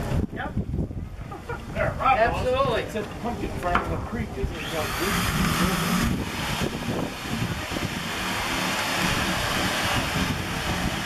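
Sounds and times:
power drill running: 4.5s - 11.0s.

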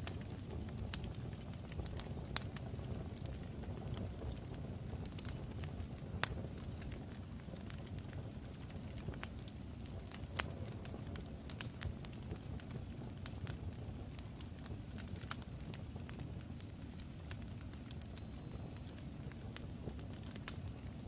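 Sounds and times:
fire crackling and popping: 0.0s - 21.0s
faint high whistle: 13.2s - 21.0s.

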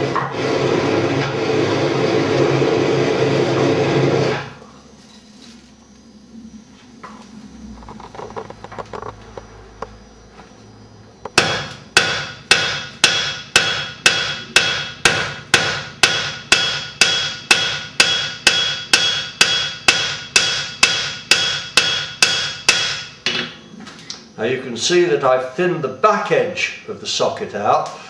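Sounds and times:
hammer striking iron on anvil: 11.4s - 23.4s.

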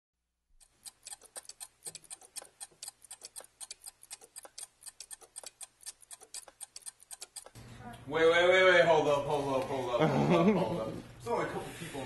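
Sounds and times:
stopwatch ticking: 0.6s - 7.6s.

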